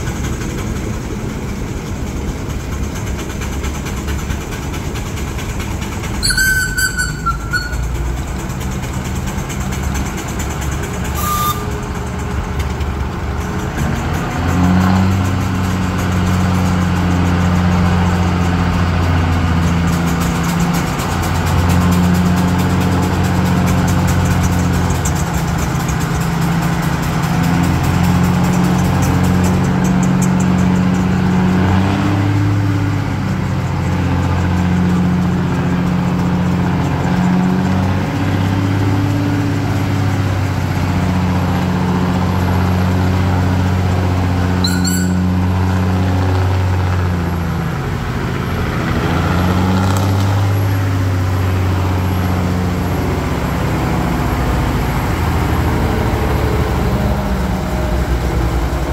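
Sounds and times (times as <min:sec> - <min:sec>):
vehicle engines running: 0:00.0 - 0:58.9
brief high-pitched sound: 0:06.2 - 0:08.0, 0:44.6 - 0:45.4.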